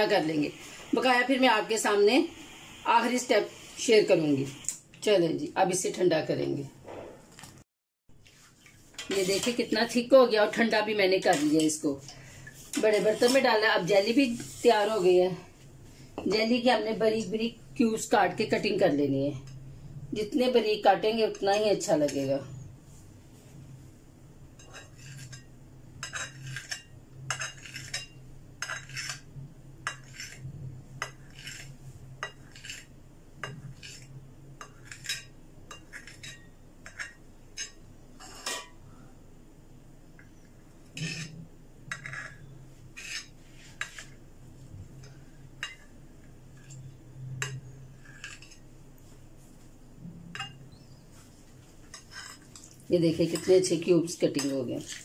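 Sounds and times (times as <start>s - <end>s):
knife tapping and scraping plate: 24.6s - 30.4s, 31.0s - 38.8s, 40.9s - 44.2s, 47.4s - 48.6s.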